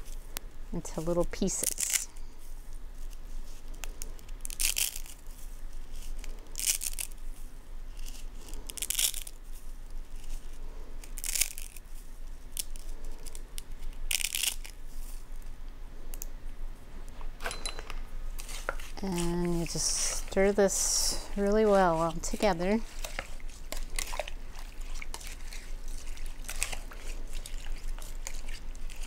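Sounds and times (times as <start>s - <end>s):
dry pasta snapping: 3.8s - 5.3s, 6.2s - 7.2s, 11.0s - 11.8s, 12.5s - 14.8s.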